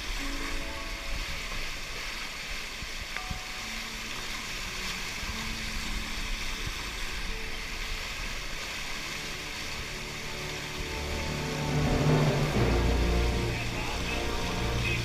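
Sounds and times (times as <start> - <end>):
waterfall rushing into pool: 0.0 - 15.0.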